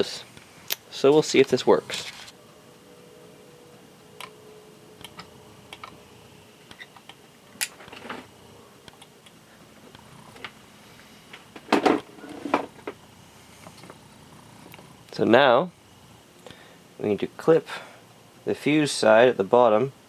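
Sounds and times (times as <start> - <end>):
soldering gun hum: 0.3 - 15.2.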